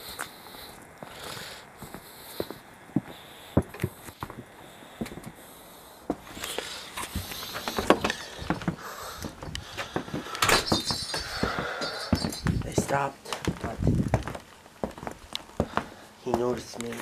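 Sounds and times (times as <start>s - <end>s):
footsteps: 0.0s - 5.5s, 6.1s - 17.0s
door opening and shutting: 7.0s - 12.8s.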